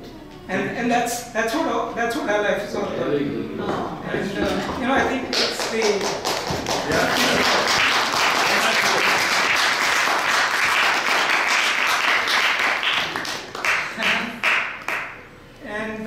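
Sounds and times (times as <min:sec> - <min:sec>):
audience applauding: 0:05.4 - 0:15.2.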